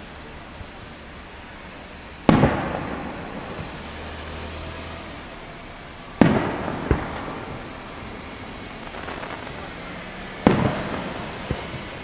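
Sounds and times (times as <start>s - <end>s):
fireworks bangs echoing: 2.1s - 4.4s, 5.1s - 12.0s.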